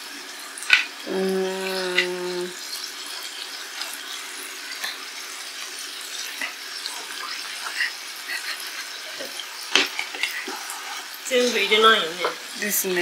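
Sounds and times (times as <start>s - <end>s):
meat sizzling in a frying pan: 0.0s - 13.0s.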